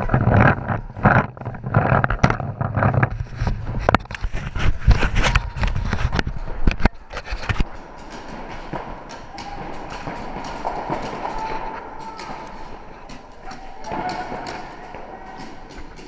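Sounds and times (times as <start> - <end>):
clothing rubbing on camera: 0.0 - 6.5.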